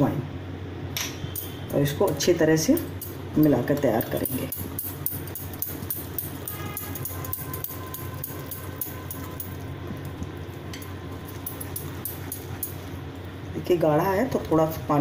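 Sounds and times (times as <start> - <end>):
steady low hum: 0.0 - 15.0
whisk scraping a glass bowl: 4.9 - 9.6, 11.3 - 13.0.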